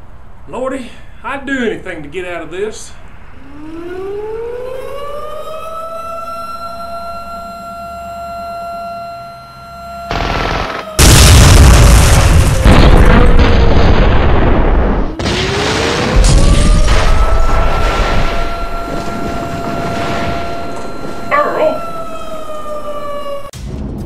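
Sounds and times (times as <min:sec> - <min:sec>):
air-raid siren wailing: 0:03.2 - 0:23.6
explosions: 0:10.1 - 0:21.8.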